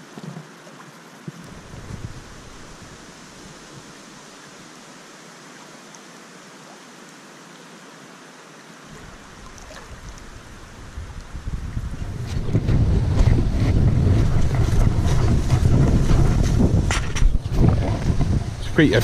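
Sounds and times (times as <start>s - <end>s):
river rushing: 0.0s - 19.0s
wind rumble on microphone: 1.3s - 3.9s, 8.9s - 19.0s.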